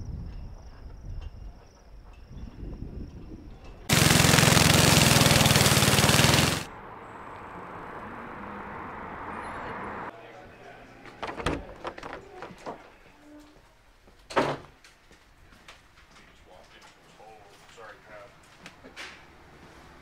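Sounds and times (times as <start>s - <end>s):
brush mower engine cutting grass: 3.9s - 6.7s.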